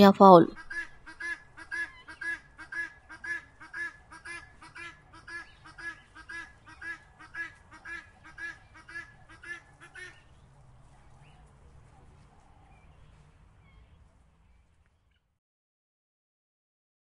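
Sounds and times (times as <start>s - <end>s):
guineafowl calling: 0.6s - 10.3s.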